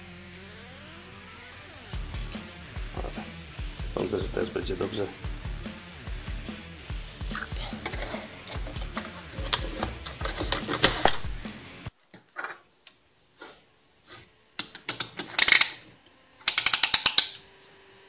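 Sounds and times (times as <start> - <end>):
background music with steady beat: 0.0 - 11.9
metallic ratchet clicks: 14.6 - 15.8, 16.4 - 17.4.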